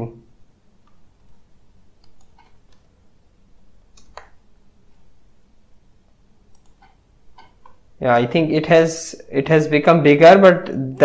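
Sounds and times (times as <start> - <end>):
low room noise: 0.0 - 11.0
computer keys clicking: 2.0 - 2.9, 3.9 - 4.4, 6.5 - 8.3
mouse clicks: 2.0 - 2.9, 3.9 - 4.4, 6.5 - 8.3.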